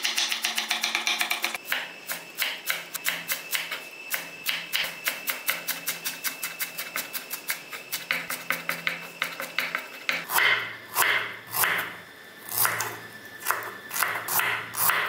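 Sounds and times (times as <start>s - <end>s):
knife chopping on wooden board: 8.1s - 11.8s, 12.6s - 15.0s.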